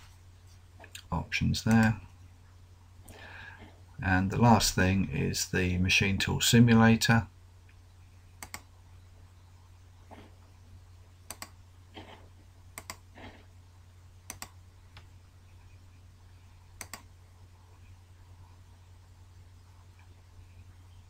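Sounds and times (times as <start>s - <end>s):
steady low hum: 0.0s - 21.0s
computer mouse clicks: 8.4s - 8.7s, 11.3s - 12.1s, 12.8s - 13.0s, 14.3s - 15.1s, 16.8s - 17.1s.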